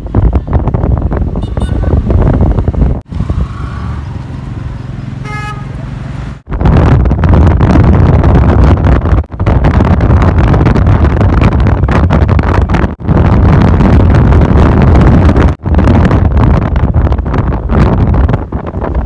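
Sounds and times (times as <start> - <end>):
wind buffeting microphone: 0.0 - 5.0, 6.4 - 19.0
motorcycle engine: 0.2 - 6.5
horn toot: 5.2 - 5.8.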